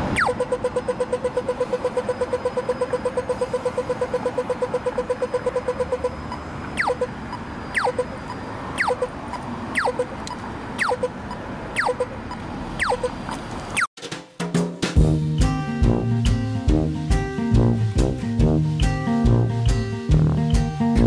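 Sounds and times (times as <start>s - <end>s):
crossing signal rapid beeping: 0.0s - 13.2s
traffic hum: 0.0s - 13.9s, 15.0s - 21.0s
falling electronic chirp: 0.1s - 0.6s, 2.0s - 9.1s, 9.7s - 10.1s, 10.8s - 11.2s, 11.8s - 12.2s, 12.8s - 13.2s.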